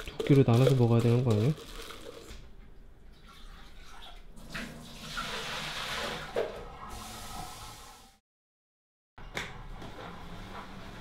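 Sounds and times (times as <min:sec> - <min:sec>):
tap water running: 0:00.1 - 0:08.2.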